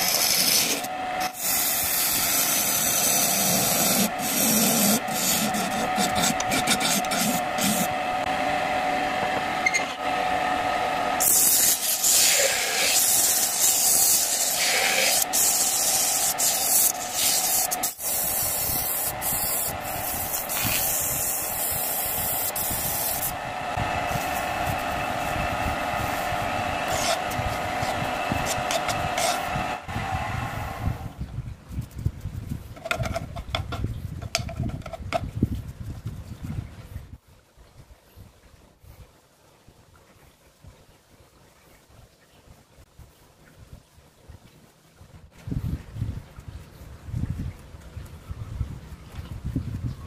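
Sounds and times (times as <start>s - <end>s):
sandpaper hissing on wood: 0.0s - 7.9s, 11.2s - 23.3s, 26.0s - 29.6s
wood lathe running: 0.0s - 30.1s
gouge cutting spinning wood: 0.0s - 30.7s.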